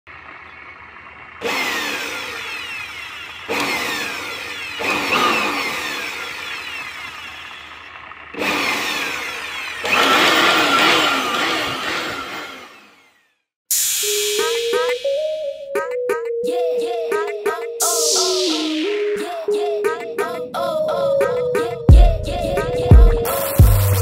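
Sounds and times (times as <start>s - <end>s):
electric air blower bursts: 1.4s - 14.9s.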